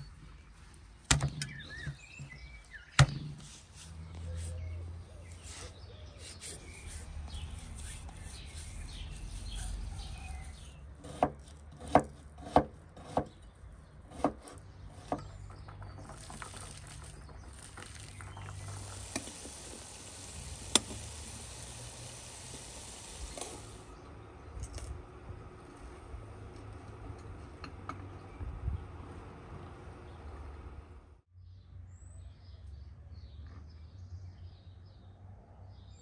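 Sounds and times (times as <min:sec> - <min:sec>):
knife chopping on wooden board: 0:10.2 - 0:13.3, 0:14.1 - 0:15.2
steady high hiss: 0:17.6 - 0:23.9.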